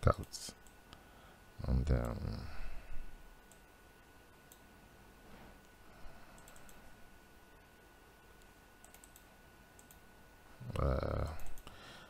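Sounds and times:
computer mouse clicks: 4.5s - 4.7s, 5.6s - 6.8s, 8.4s - 10.0s, 11.3s - 11.7s.

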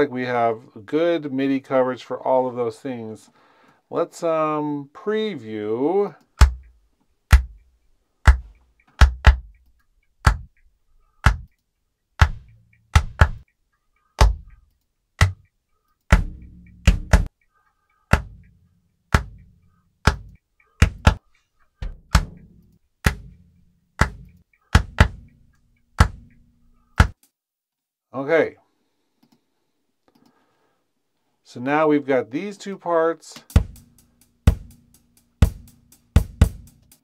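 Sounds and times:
kick drum hits: 6.4s - 6.6s, 7.3s - 7.6s, 8.3s - 9.5s, 11.2s - 11.5s, 12.2s - 13.4s, 14.2s - 14.5s, 16.1s - 17.3s, 18.1s - 18.5s, 19.2s - 19.4s, 20.1s - 21.2s, 21.8s - 23.4s, 24.0s - 25.3s, 33.5s - 33.9s, 34.5s - 34.8s, 35.4s - 36.7s.

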